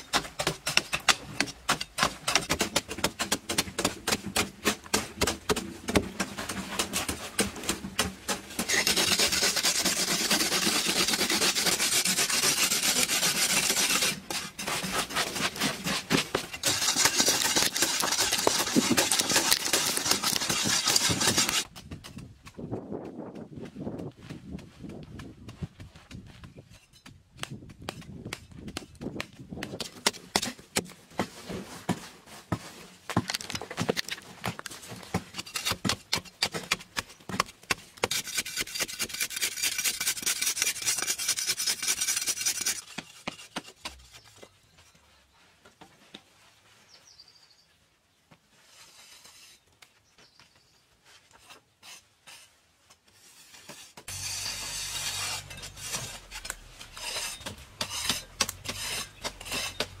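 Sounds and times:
blade scraping earthen wall: 0.0s - 23.5s, 27.8s - 45.0s, 48.6s - 49.8s, 51.1s - 60.0s
tool chopping dirt: 0.0s - 32.0s, 33.1s - 44.1s, 53.7s - 60.0s.

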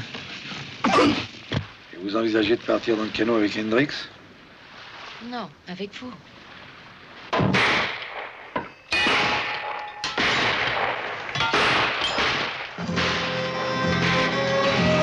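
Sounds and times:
loud gunshots: 7.3s - 14.3s.

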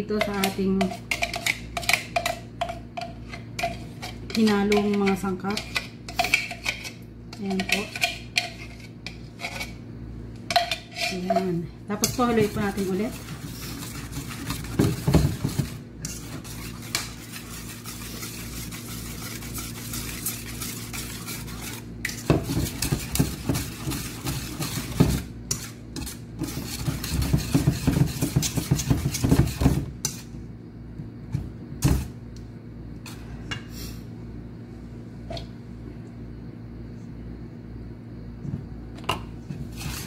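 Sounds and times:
steady low hum: 0.0s - 40.0s
whisk clinking against metal bowl: 0.1s - 8.6s, 10.5s - 30.2s.

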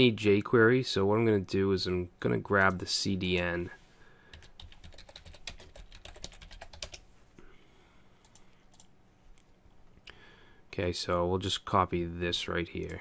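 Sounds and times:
computer keyboard typing: 4.3s - 7.0s, 8.2s - 8.9s.

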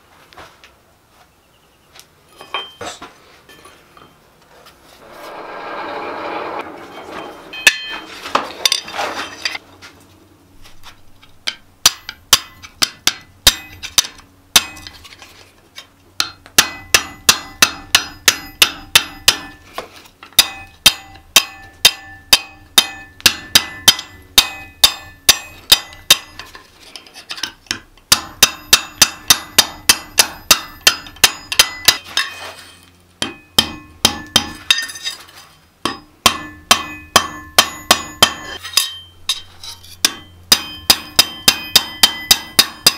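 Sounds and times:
ringing metal tone: 5.2s - 8.2s, 16.6s - 19.7s, 20.4s - 26.5s, 28.2s - 35.2s, 36.4s - 42.9s
hammer striking steel on anvil: 7.2s - 9.6s, 11.4s - 15.0s, 16.2s - 19.6s, 20.4s - 26.6s, 27.4s - 32.5s, 33.2s - 35.2s, 35.8s - 42.9s.

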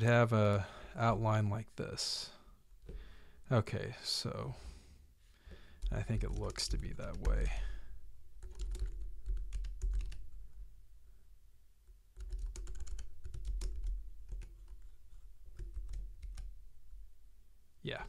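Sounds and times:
typing on computer keyboard: 5.8s - 7.6s, 8.4s - 10.2s, 12.2s - 14.8s, 15.5s - 16.5s.

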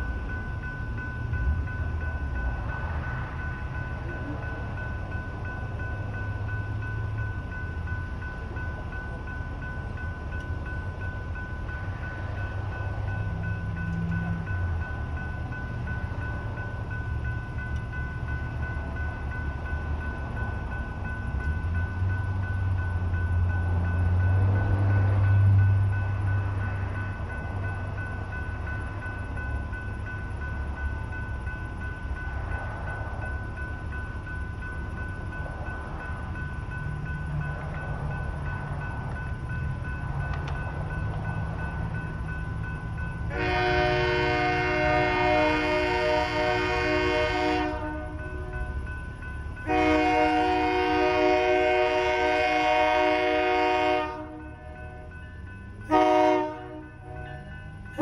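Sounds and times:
railroad crossing bells ringing: 0.0s - 58.0s
train horn: 43.3s - 48.2s, 49.6s - 54.5s, 55.9s - 57.4s.

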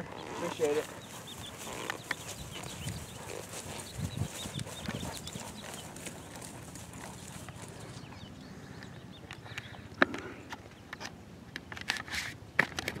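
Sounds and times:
horse hooves thudding on grass: 0.0s - 8.3s.

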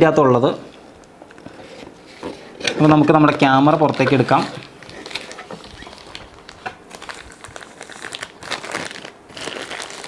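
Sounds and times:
plastic wrap crinkling: 2.1s - 10.0s.

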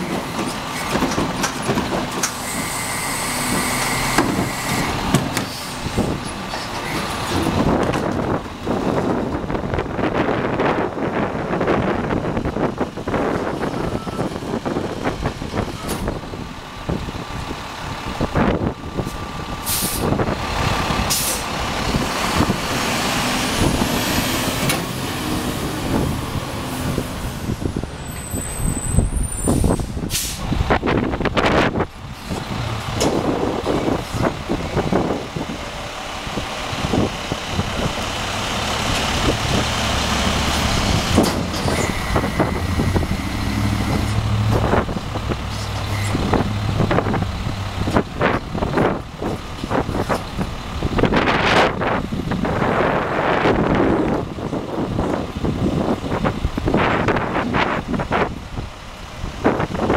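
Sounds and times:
garbage truck engine running: 0.0s - 59.9s
hydraulic whine: 2.2s - 6.1s, 40.5s - 47.2s
air hiss bursts: 19.6s - 20.1s, 29.4s - 30.4s.

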